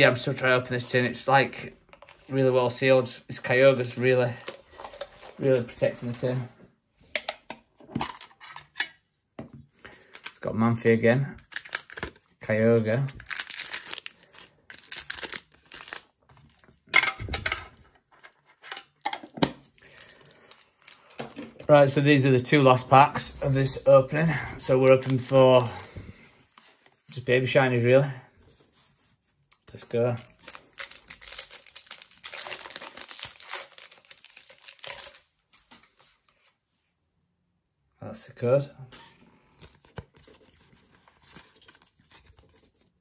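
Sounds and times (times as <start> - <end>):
plastic wrap crinkling and tearing: 11.4 - 12.4, 13.1 - 17.1, 19.0 - 21.4, 24.6 - 26.8, 29.4 - 36.2.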